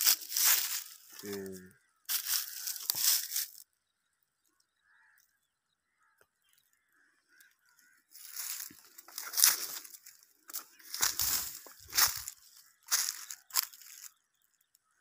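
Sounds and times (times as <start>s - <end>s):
footsteps crunching on dry stubble: 0.0s - 3.6s, 7.7s - 14.5s.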